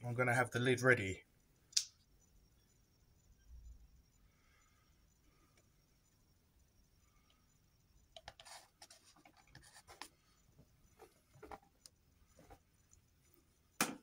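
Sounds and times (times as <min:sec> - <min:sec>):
faint scratching: 0:08.2 - 0:12.9.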